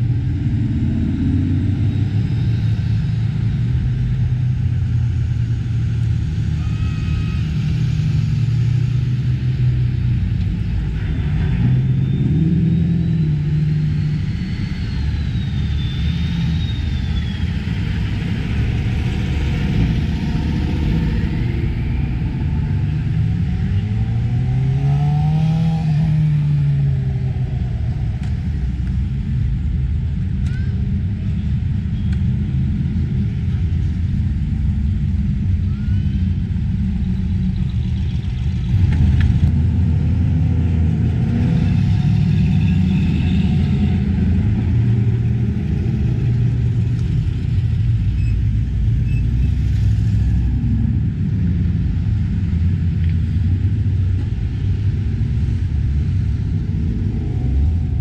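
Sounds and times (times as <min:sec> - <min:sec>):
cars driving past: 0:31.3 - 0:58.0.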